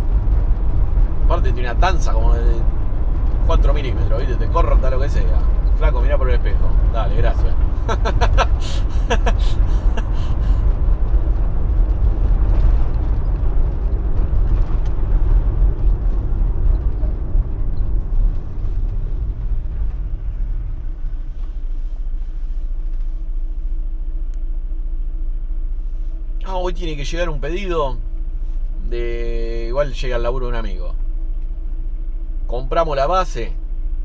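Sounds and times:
van engine and tyre rumble: 0.0s - 34.0s.

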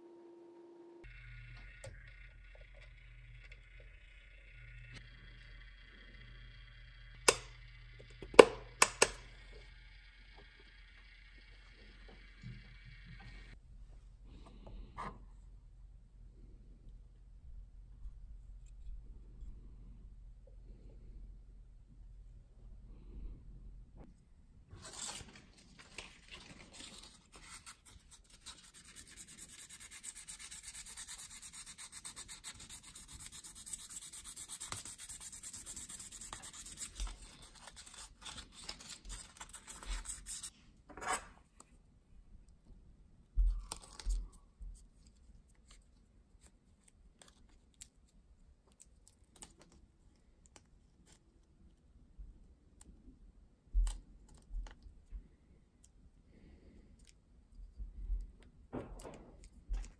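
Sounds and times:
sandpaper rubbing wood: 27.4s - 40.5s.

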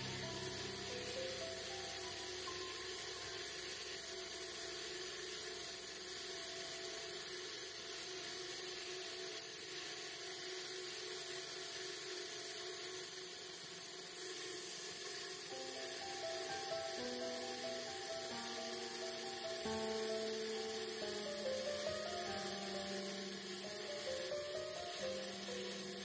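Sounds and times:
lathe motor hum: 0.0s - 11.1s, 11.8s - 26.0s
turning tool shaving wood: 15.5s - 26.0s.

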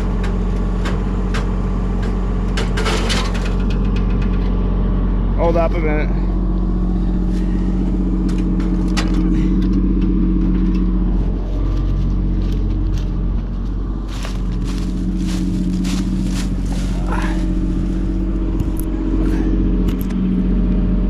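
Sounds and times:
excavator diesel engine running: 0.0s - 21.0s.

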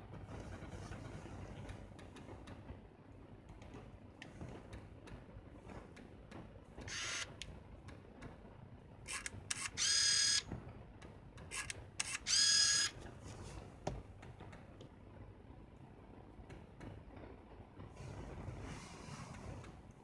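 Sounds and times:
camera zoom lens motor whirring: 6.8s - 7.3s, 9.1s - 10.5s, 11.5s - 13.0s
small mechanical clicks: 9.1s - 10.4s, 11.4s - 12.9s.

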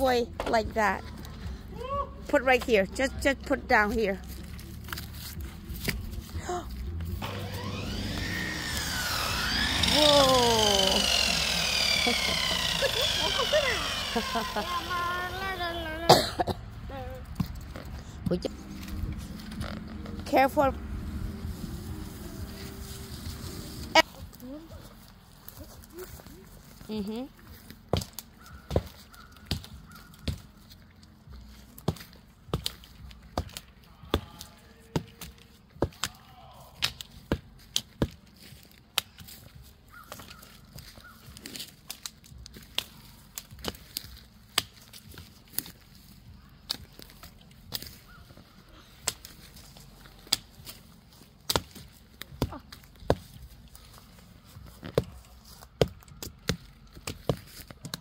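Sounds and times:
twigs snapping: 27.6s - 54.3s
chopping wood knocks: 27.9s - 30.5s.

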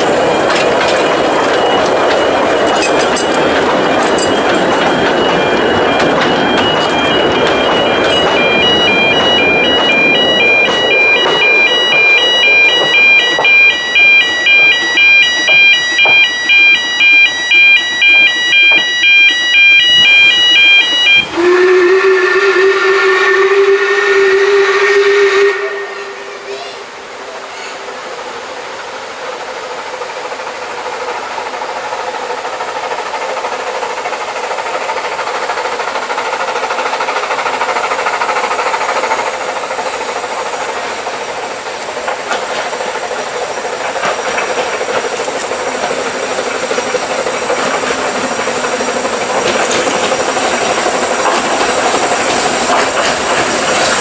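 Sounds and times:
level crossing alarm pulsing: 0.0s - 26.3s
steam locomotive whistle: 5.2s - 26.9s
steam train hissing rumble: 21.2s - 54.0s.

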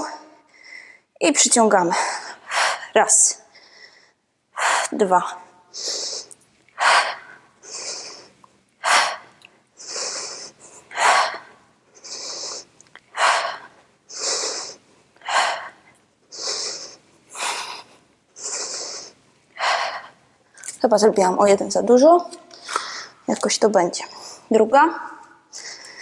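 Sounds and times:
woman breathing hard: 1.9s - 5.0s, 5.7s - 20.3s, 25.5s - 26.0s.

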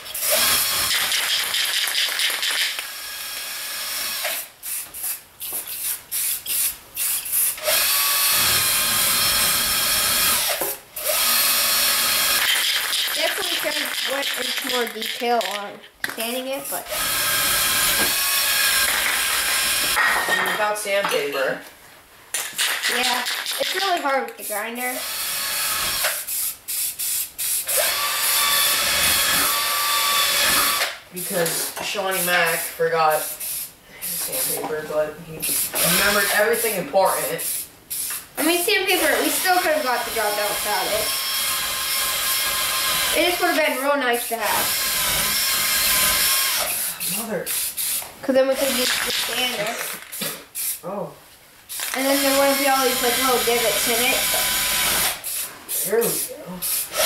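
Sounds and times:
spray paint can hissing: 0.9s - 2.8s, 4.3s - 7.6s, 12.4s - 15.6s, 26.1s - 27.7s, 32.2s - 34.6s, 37.4s - 38.3s, 46.6s - 50.8s, 51.7s - 54.1s, 55.0s - 57.0s.

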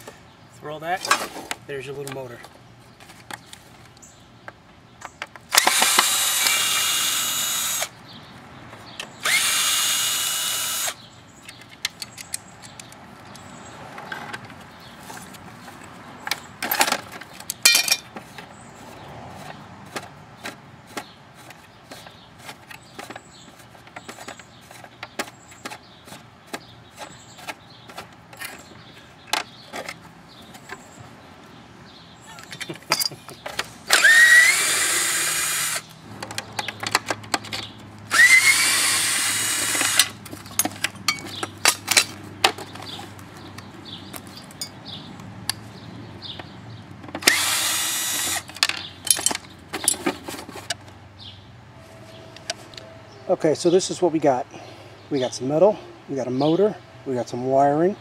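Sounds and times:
power drill running: 5.6s - 7.9s, 9.2s - 11.0s, 33.9s - 35.9s, 38.1s - 40.1s, 47.2s - 48.5s.

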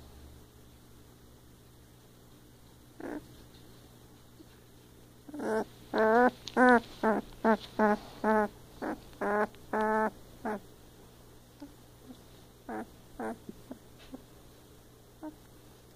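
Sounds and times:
puppy whining: 3.0s - 3.4s, 5.2s - 10.6s, 11.6s - 14.2s, 15.2s - 15.5s.

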